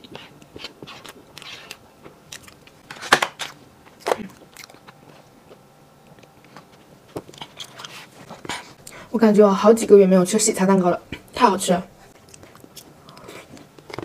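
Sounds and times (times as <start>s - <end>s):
chewing and swallowing: 4.0s - 9.1s, 12.2s - 14.0s.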